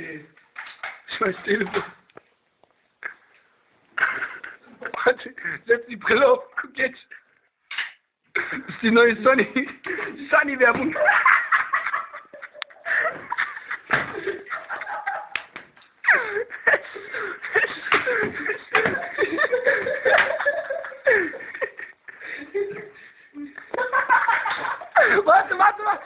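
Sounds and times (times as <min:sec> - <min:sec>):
group of people laughing: 0:10.9 - 0:26.0.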